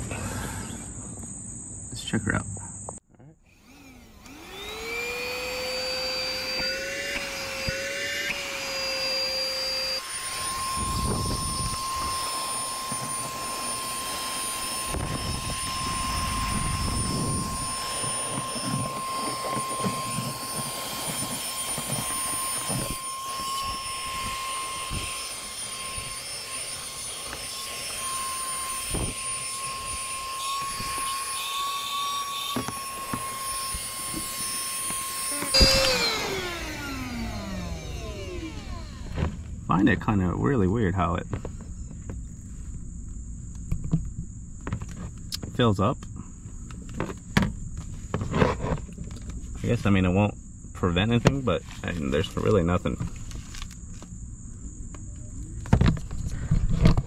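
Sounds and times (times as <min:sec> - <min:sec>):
handheld vacuum cleaner whine: 0:03.4 - 0:42.7, 0:43.5 - 0:54.1, 0:54.9 - 0:57.0.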